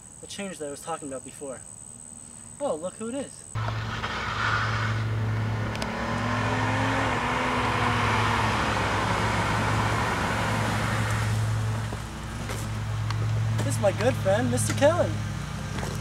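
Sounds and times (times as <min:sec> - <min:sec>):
car engine approaching: 0:03.6 - 0:16.0
tyre noise: 0:03.6 - 0:16.0.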